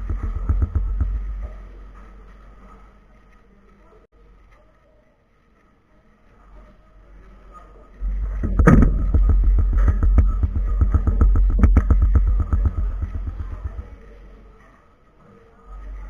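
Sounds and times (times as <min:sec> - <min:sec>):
low rumble: 0:00.0 - 0:02.0, 0:08.0 - 0:14.3.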